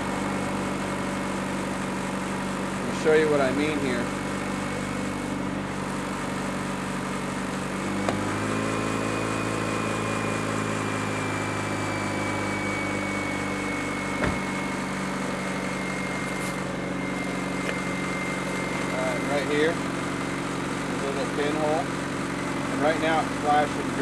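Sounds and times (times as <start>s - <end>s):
car engine idling: 0.0s - 8.4s, 13.4s - 24.0s.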